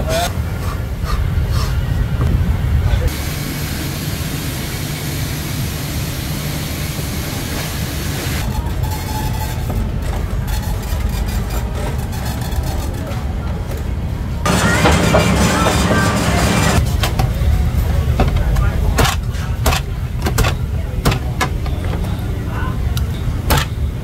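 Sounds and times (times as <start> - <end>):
traffic rumble: 0.0 - 24.0
indistinct voices: 8.4 - 24.0.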